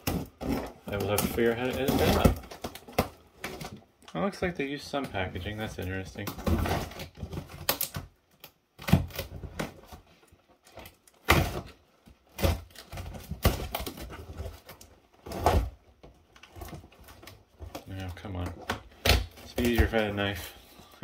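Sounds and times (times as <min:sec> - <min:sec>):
packing tape tearing: 0:00.0 - 0:03.8
cardboard rustling: 0:00.0 - 0:21.0.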